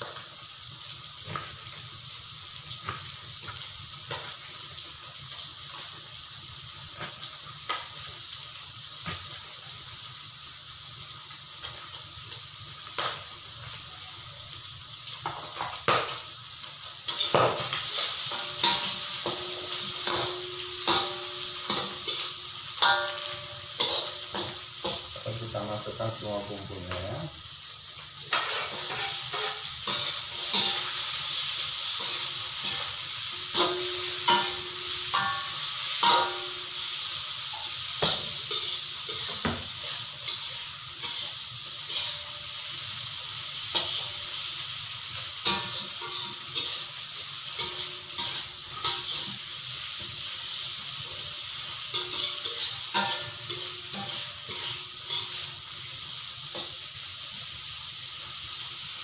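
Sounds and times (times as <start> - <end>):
food sizzling in hot oil: 0.0 - 59.0
spatula scraping metal wok: 17.1 - 25.8, 28.3 - 36.6, 37.5 - 42.8, 43.6 - 44.4, 45.3 - 50.2, 51.0 - 55.7.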